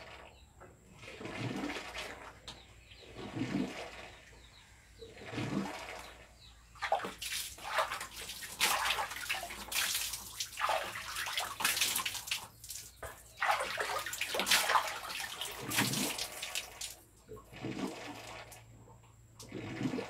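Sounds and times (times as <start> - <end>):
water splashing: 1.0 - 2.5, 5.2 - 18.7.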